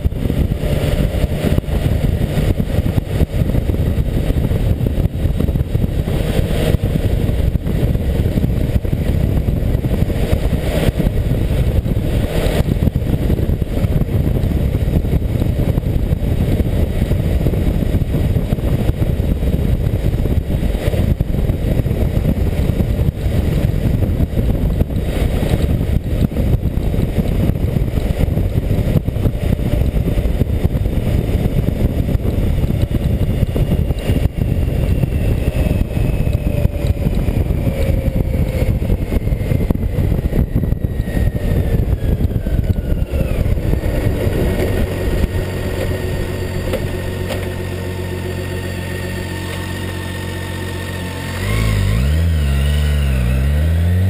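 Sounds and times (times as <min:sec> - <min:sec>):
motorcycle engine running: 0:00.0 - 0:54.0
wind buffeting microphone: 0:00.0 - 0:54.0.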